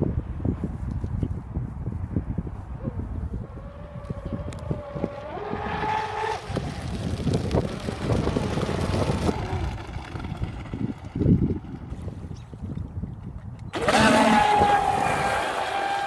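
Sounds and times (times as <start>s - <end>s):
wind on microphone: 0.0s - 16.0s
electric motor whining: 3.5s - 10.9s, 13.8s - 16.0s.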